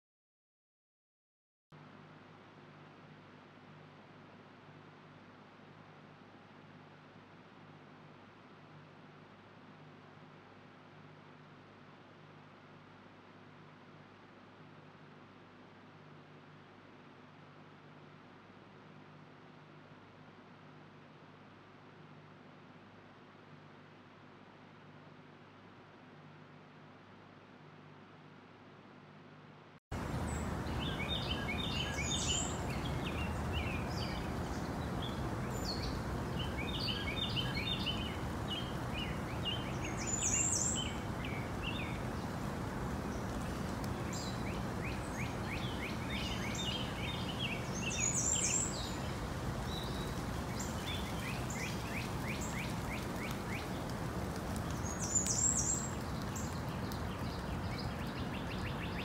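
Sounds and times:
steady background hiss: 0:01.8 - 0:59.0
songbirds twittering: 0:30.0 - 0:59.0.

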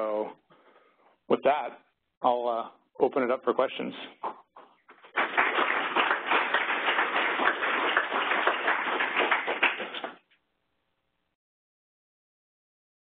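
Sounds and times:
audience applauding: 0:04.9 - 0:10.2.

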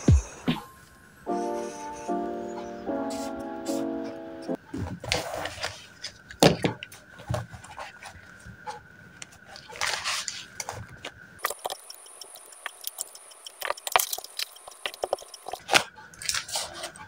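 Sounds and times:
paper rustling: 0:04.9 - 0:06.3, 0:09.5 - 0:11.7
plastic pens clicking and clattering: 0:11.4 - 0:16.6.

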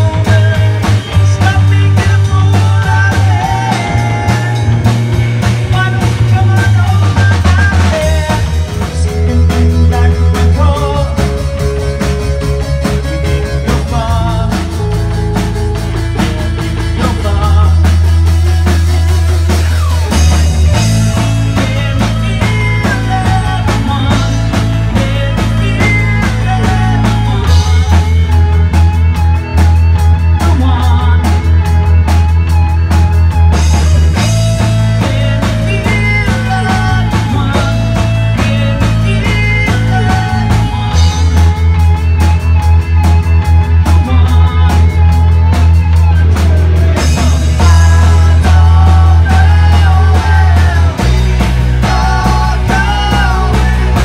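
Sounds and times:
person singing: 0:00.0 - 0:32.5, 0:33.2 - 0:54.0
drum kit steady beat: 0:00.0 - 0:54.0
electric bass low notes: 0:00.0 - 0:54.0
electric guitar: 0:00.0 - 0:54.0.

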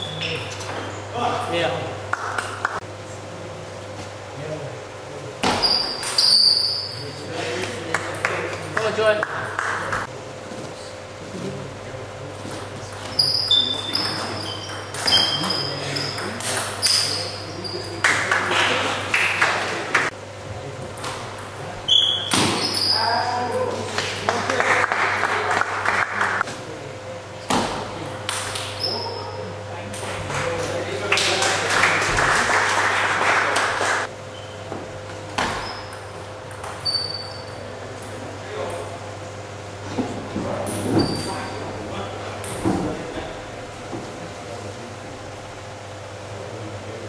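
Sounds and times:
brief high squeak: 0:05.6 - 0:07.0, 0:36.8 - 0:37.6
applause: 0:07.9 - 0:10.0, 0:18.0 - 0:20.1, 0:23.9 - 0:26.4, 0:31.0 - 0:34.1
ping pong ball hitting bats: 0:13.9 - 0:17.3.

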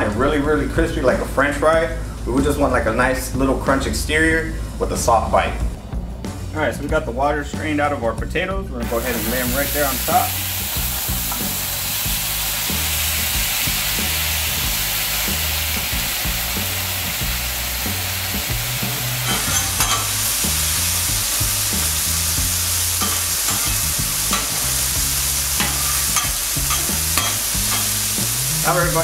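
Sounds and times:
potatoes sizzling in hot oil: 0:08.8 - 0:29.0
metal spatula scraping griddle: 0:18.9 - 0:20.9, 0:21.5 - 0:28.2.

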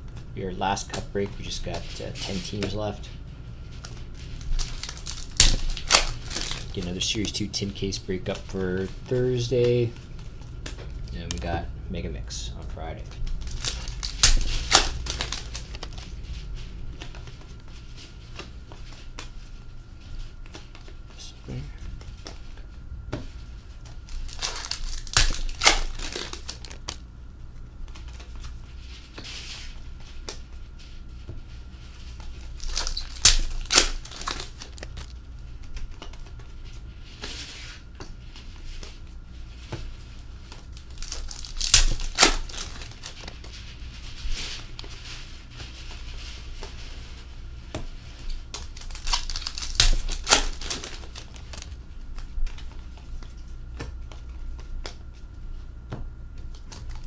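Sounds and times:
card packs torn open: 0:03.8 - 0:07.3, 0:13.2 - 0:16.1, 0:24.0 - 0:27.0, 0:32.4 - 0:35.1, 0:40.7 - 0:43.4, 0:48.5 - 0:51.7
cards rustling and sliding: 0:13.1 - 0:21.1, 0:22.0 - 0:27.0.

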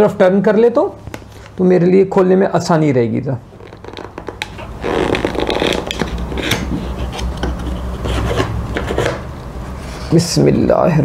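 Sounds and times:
cardboard flap scraping: 0:03.6 - 0:07.3.

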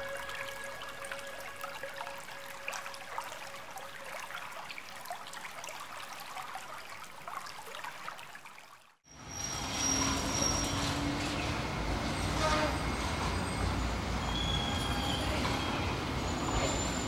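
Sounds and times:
faint water trickling: 0:00.0 - 0:09.0.

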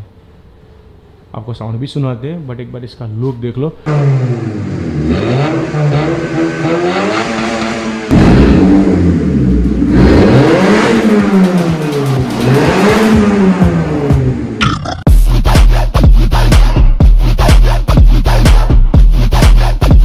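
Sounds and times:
car engine revving: 0:03.9 - 0:14.7.

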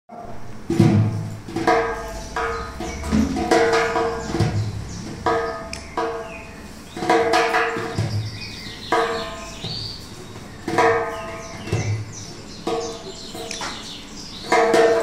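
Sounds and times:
struck percussion thumps: 0:00.7 - 0:06.4, 0:07.0 - 0:10.0
high chirping sounds: 0:01.7 - 0:15.0.

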